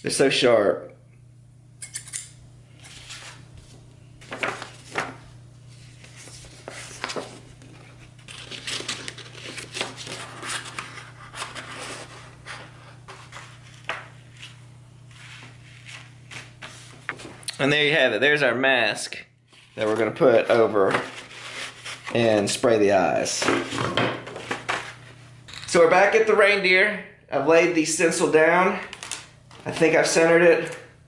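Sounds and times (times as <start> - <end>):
paper rustling: 2.8 - 17.4, 20.8 - 22.6, 28.8 - 30.0.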